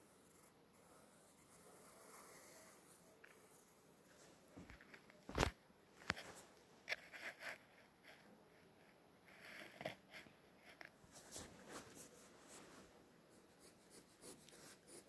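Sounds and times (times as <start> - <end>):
pencil strokes: 6.2 - 15.0.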